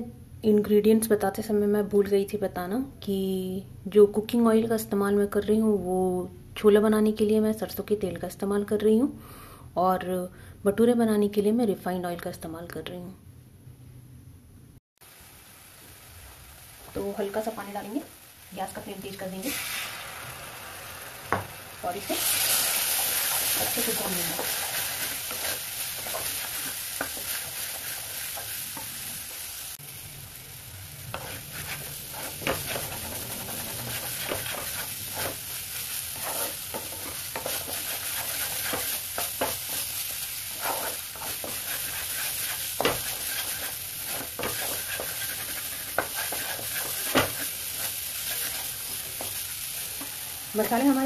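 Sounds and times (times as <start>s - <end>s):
masala sizzling in oil: 15.0s - 51.0s
spatula scraping metal pan: 31.1s - 35.4s, 36.1s - 39.9s, 40.5s - 49.4s.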